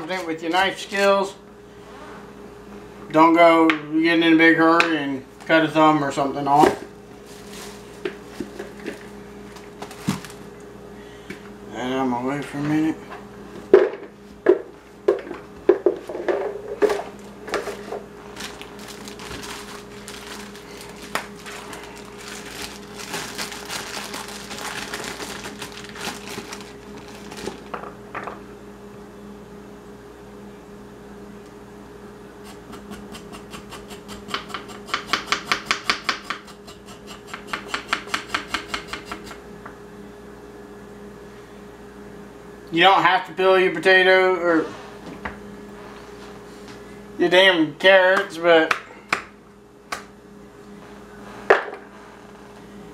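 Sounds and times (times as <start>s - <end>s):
plastic bag crinkling: 7.2s - 8.8s, 17.1s - 27.8s.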